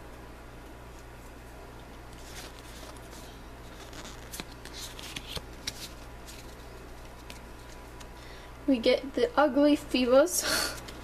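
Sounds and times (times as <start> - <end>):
trading cards shuffled: 2.1 - 8.2.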